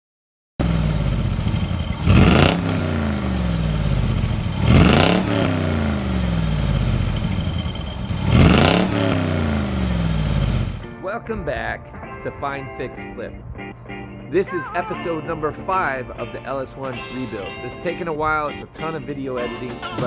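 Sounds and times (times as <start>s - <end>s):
car engine idling and revving: 0.6s - 10.8s.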